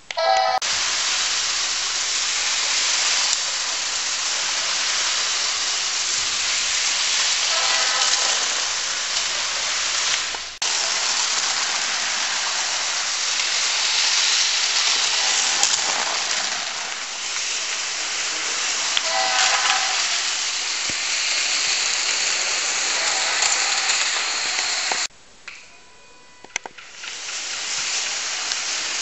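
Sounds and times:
train whistle: 0.0 - 1.0, 2.0 - 11.8, 18.2 - 26.6
moving train rushing: 0.0 - 25.1, 26.4 - 29.0.

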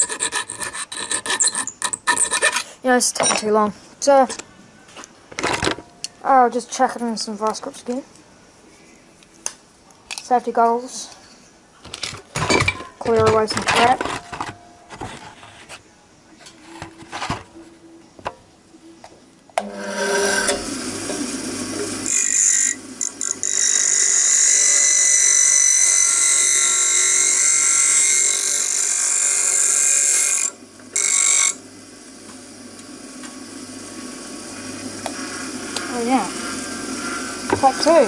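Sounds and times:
bench grinder running: 19.6 - 31.6
metal grinding hiss: 19.8 - 32.1, 33.0 - 38.0.

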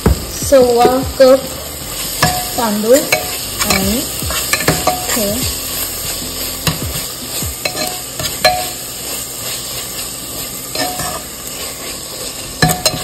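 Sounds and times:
masala sizzling in a pot: 0.0 - 13.0
metal spoon scraping pot: 7.6 - 8.8
spoon clinking against pot: 7.6 - 8.8, 12.6 - 13.0.

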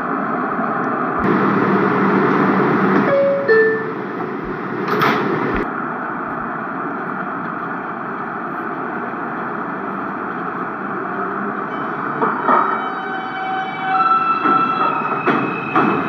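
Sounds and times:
subway train running: 0.0 - 16.0
train clatter: 0.8 - 5.7, 6.3 - 16.0
two-tone door chime: 3.1 - 4.0.

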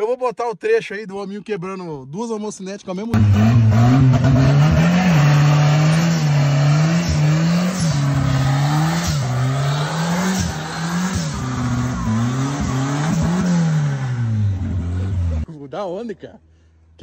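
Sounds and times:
car engine revving: 3.2 - 15.5.

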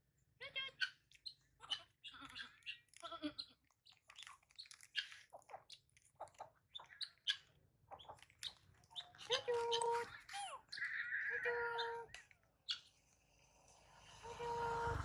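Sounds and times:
chewing clicks: 1.1 - 9.3
faint animal calls: 9.0 - 12.9.

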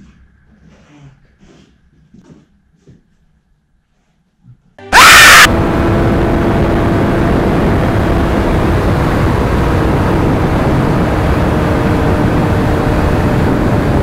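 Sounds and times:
faint motorcycle engine drone: 4.9 - 14.0
wind rush over microphone: 6.6 - 14.0.

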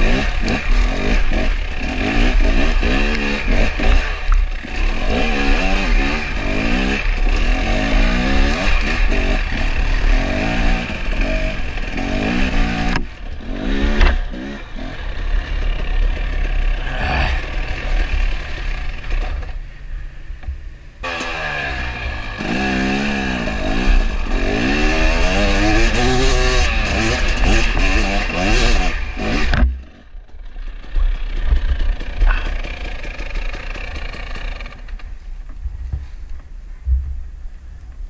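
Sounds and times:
dirt bike engine revving: 0.0 - 19.6, 21.0 - 35.0
wind rumble on microphone: 35.5 - 38.0.

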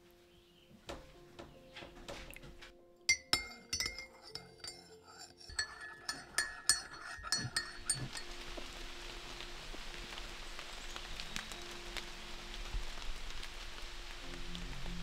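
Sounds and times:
spoon clinking in ceramic mug: 3.1 - 8.4.

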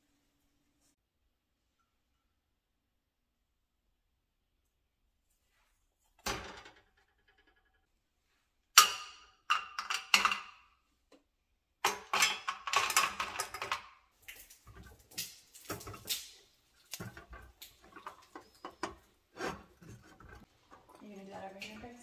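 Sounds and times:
caramels clattering in metal pan: 8.8 - 10.7, 11.8 - 22.0
spatula stirring in pan: 14.6 - 22.0.

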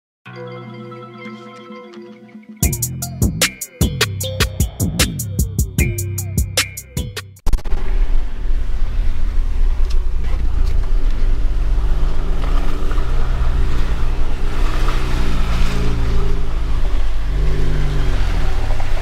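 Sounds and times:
low rumble: 7.5 - 14.4
car engine revving while driving: 7.9 - 19.0.

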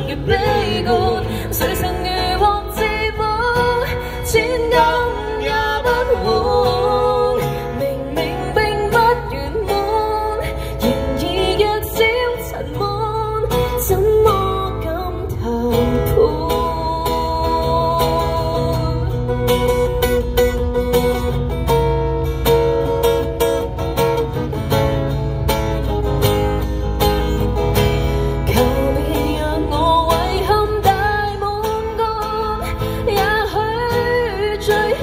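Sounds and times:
woman singing: 0.0 - 19.4, 28.4 - 35.0
acoustic guitar strumming: 0.0 - 35.0.

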